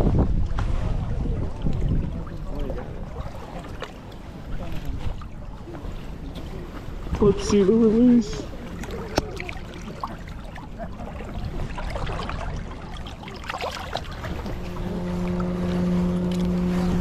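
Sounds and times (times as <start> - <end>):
river water splashing: 0.0 - 17.0
steady low hum: 11.2 - 17.0.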